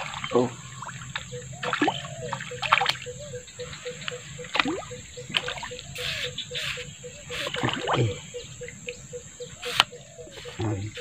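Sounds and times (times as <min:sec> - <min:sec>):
bait splashing in water: 0:00.0 - 0:03.1, 0:04.4 - 0:05.9, 0:07.4 - 0:08.1
sharp splashes: 0:00.0 - 0:03.1, 0:04.4 - 0:06.3, 0:07.3 - 0:08.2.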